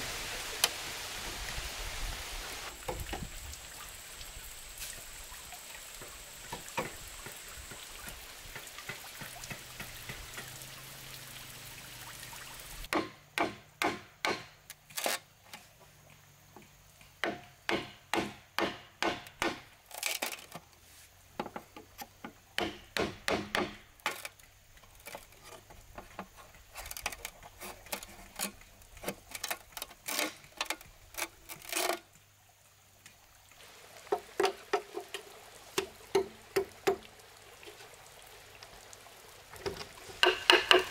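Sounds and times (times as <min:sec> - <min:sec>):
water spraying hiss: 0:00.0 - 0:12.9, 0:20.8 - 0:40.9
knife chopping bamboo: 0:12.9 - 0:14.6, 0:17.2 - 0:19.7, 0:22.6 - 0:23.9.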